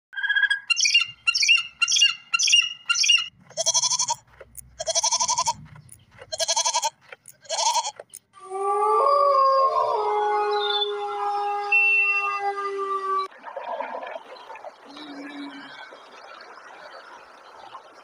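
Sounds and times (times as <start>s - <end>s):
falcon shrill calls: 0.7s - 4.2s
goats bleating: 3.5s - 4.2s, 4.8s - 5.6s, 6.2s - 8.0s
wolves howling: 8.4s - 13.3s.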